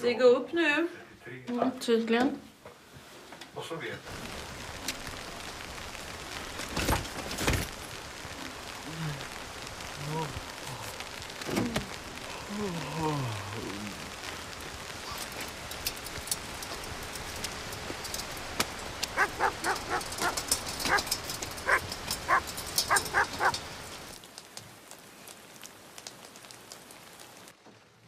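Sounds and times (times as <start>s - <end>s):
steady hiss with crackling: 0.0s - 28.0s
dog barking: 19.2s - 23.6s.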